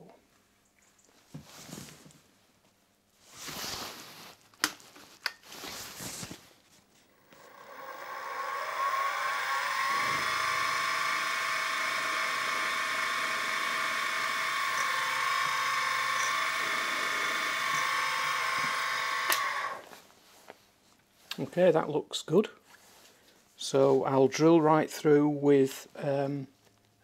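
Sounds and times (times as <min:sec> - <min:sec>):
milling machine motor whine: 0:07.2 - 0:19.9.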